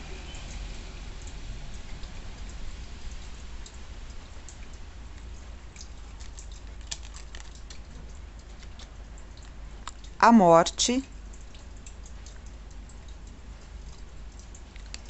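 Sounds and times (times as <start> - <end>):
tarot cards handled by hand: 6.1 - 10.0, 14.7 - 15.0.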